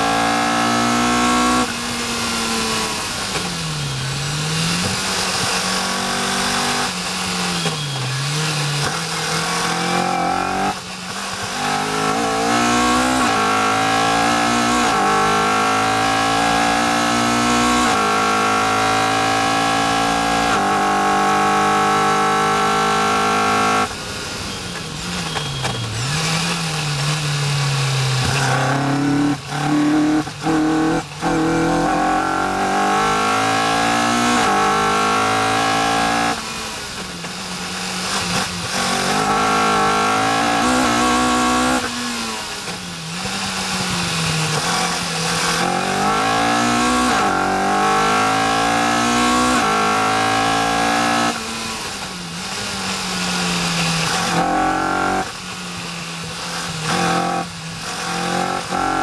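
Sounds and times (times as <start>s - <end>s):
racing car engine accelerating: 0.0s - 3.4s, 4.0s - 24.0s, 25.8s - 36.8s, 38.0s - 55.4s, 56.4s - 59.0s.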